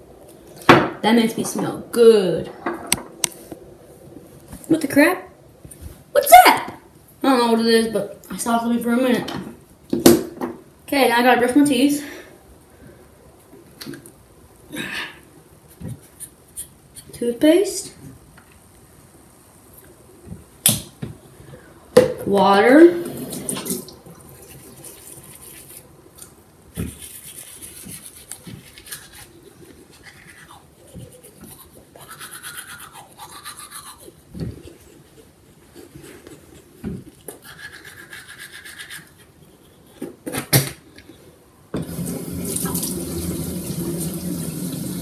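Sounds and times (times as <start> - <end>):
tap water running: 22.9 - 24.4, 41.8 - 45.0
toothbrush scrubbing teeth: 24.2 - 25.9, 26.9 - 40.1.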